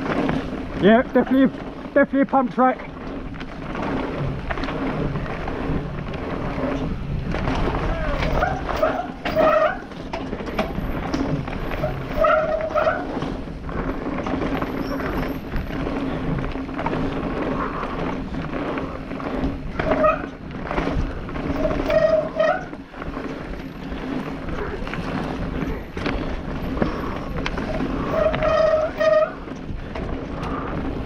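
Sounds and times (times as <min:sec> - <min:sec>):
bike rattling over bumps: 0:00.0 - 0:31.0
bike tyres on dirt: 0:00.0 - 0:31.0
short pitched squeaks: 0:07.9 - 0:09.9, 0:10.7 - 0:13.2, 0:14.6 - 0:15.6, 0:21.5 - 0:22.8, 0:28.0 - 0:29.5.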